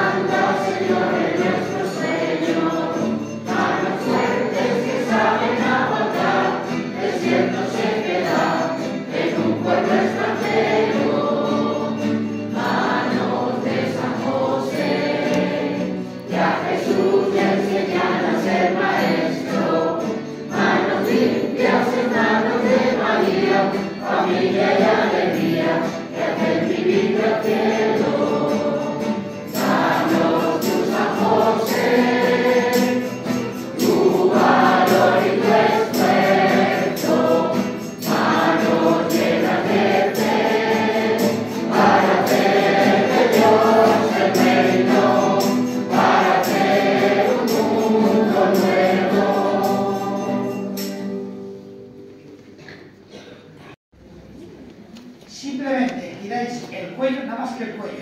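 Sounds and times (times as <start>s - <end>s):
church choir singing a hymn: 0.0s - 51.6s.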